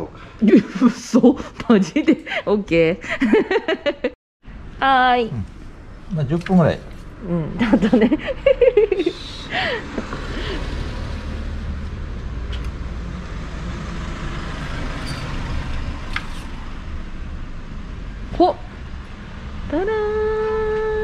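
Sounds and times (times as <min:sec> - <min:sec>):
vehicle engine rumbling: 0:04.5 - 0:21.0.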